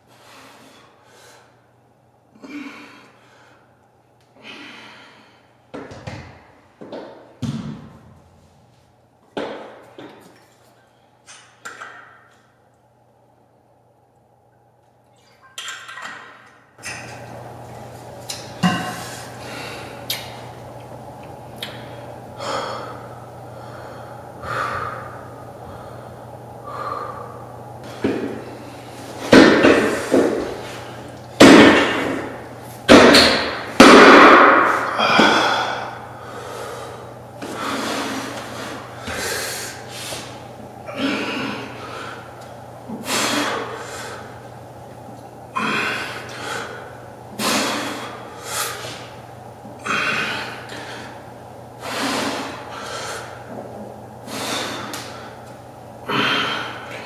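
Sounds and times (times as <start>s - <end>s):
man breathing hard: 2.4s - 5.6s, 18.8s - 20.1s, 21.8s - 29.0s, 34.3s - 42.4s, 43.0s - 44.4s, 45.6s - 49.2s, 49.8s - 53.6s, 54.2s - 55.4s, 56.0s - 57.0s.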